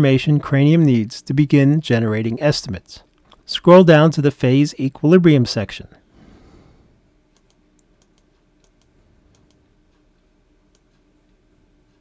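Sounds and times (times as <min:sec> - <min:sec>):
computer mouse clicks: 0:07.4 - 0:09.6.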